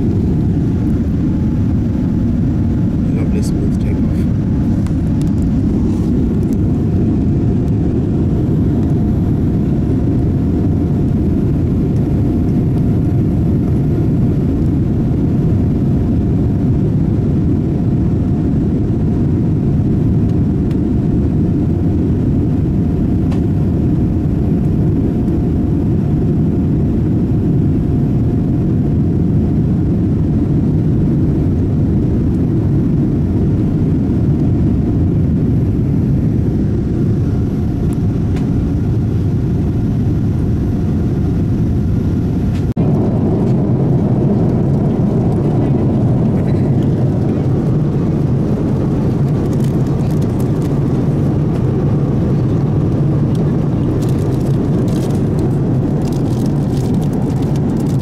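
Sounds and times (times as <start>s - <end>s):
airliner cabin engine rumble: 0.0s - 58.0s.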